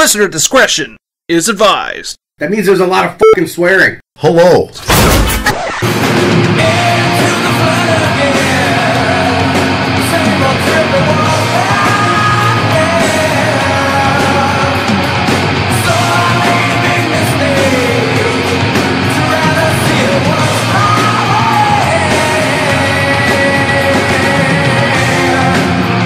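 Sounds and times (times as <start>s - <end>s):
rock music with shouted vocals: 5.3s - 26.0s.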